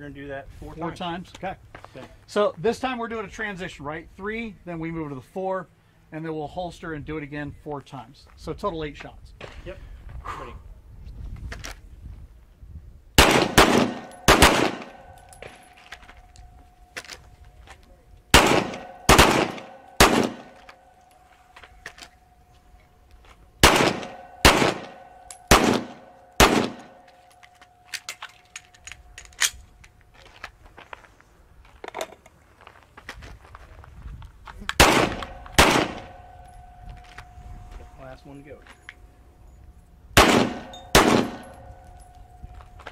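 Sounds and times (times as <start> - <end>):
handgun shots: 13.2 - 15.6, 18.4 - 20.8, 23.6 - 27.2, 34.8 - 36.5, 40.2 - 41.7.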